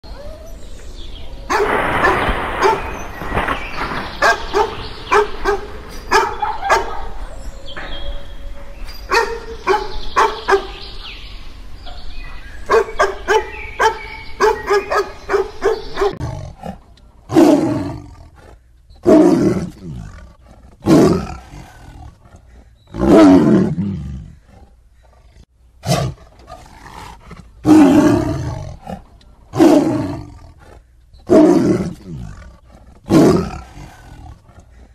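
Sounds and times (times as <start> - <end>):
dog barking: 1.5 - 2.9, 4.2 - 7.3, 9.1 - 10.8, 12.7 - 16.2
tiger roaring: 15.8 - 34.7.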